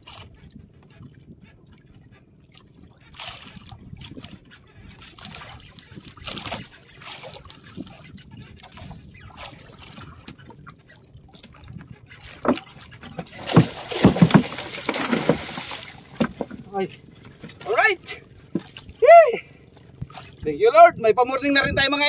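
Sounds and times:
small knocks on boat: 0:00.0 - 0:17.7, 0:18.4 - 0:18.9
water sloshing against boat hull: 0:00.0 - 0:22.0
fish thrashing and splashing: 0:05.1 - 0:19.0.

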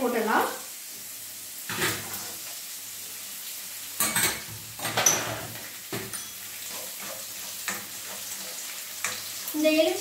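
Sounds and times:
oil sizzling in pan: 0:00.0 - 0:10.0
spatula scraping pan: 0:04.0 - 0:09.5.

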